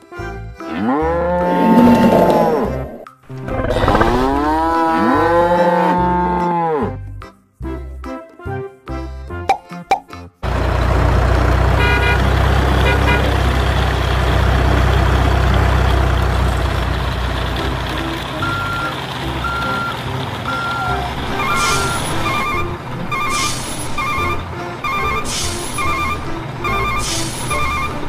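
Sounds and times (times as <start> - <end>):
truck engine rumbling: 1.7 - 5.6, 10.4 - 28.0
reversing beeps: 18.4 - 28.0.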